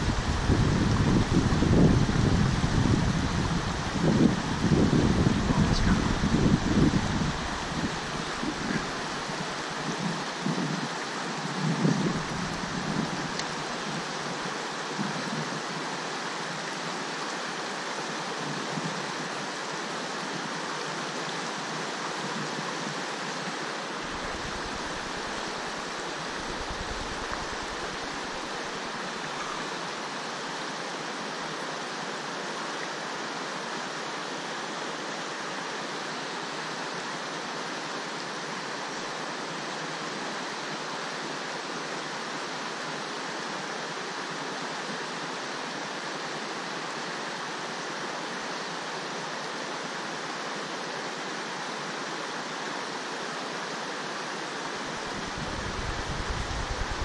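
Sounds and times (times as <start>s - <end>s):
river water over rocks: 0.0s - 57.0s.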